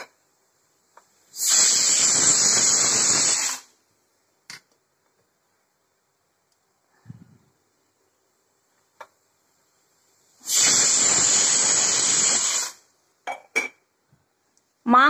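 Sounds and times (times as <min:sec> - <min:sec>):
pressure cooker whistle hissing: 0:01.3 - 0:03.7, 0:10.4 - 0:12.9.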